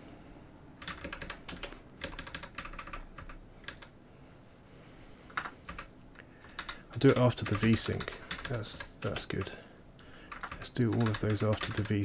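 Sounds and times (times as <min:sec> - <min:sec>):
typing on computer keyboard: 0:00.8 - 0:03.9, 0:05.3 - 0:09.5, 0:10.2 - 0:12.0.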